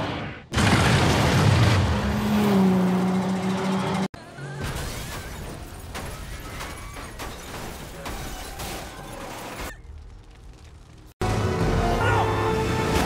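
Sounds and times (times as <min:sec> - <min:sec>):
vehicle explosion: 0:00.5 - 0:02.1
metal and debris crashing: 0:04.5 - 0:11.1.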